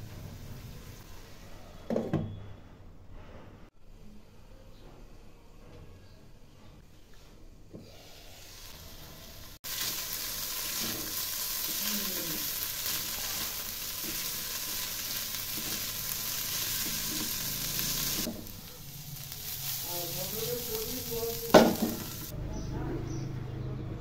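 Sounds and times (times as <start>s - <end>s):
food sizzling in a frying pan: 0.0s - 1.6s, 7.8s - 22.4s
spatula scraping a pan: 12.8s - 18.6s.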